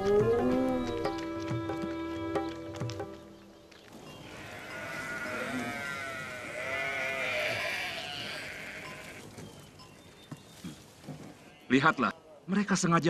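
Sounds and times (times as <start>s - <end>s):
sheep and goats bleating: 4.1s - 9.4s.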